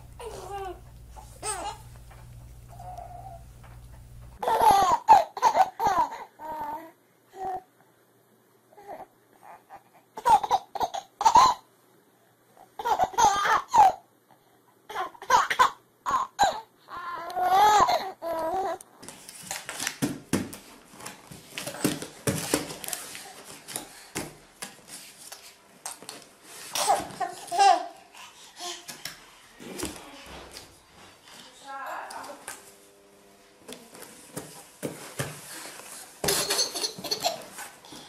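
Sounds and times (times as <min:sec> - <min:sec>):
baby giggling: 0:00.2 - 0:01.9, 0:36.2 - 0:37.6.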